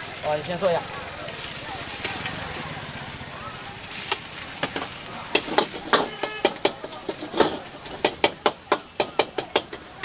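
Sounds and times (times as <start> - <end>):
metal utensils scraping a wok: 3.9 - 10.0.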